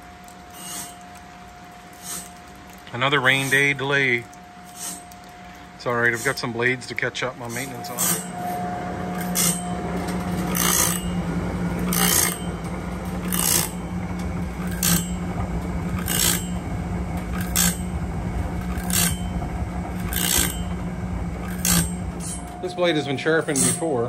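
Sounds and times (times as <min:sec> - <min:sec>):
steady motor hum: 0:00.0 - 0:24.0
grinding wheel rasping on blade teeth: 0:00.5 - 0:01.1, 0:02.0 - 0:02.4, 0:03.2 - 0:03.8, 0:04.6 - 0:05.1, 0:05.9 - 0:18.0, 0:18.6 - 0:20.8, 0:21.4 - 0:22.7.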